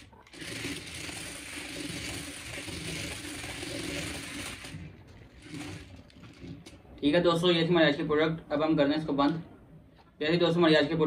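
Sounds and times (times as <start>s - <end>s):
toy car electric motors whirring: 0.0s - 6.8s.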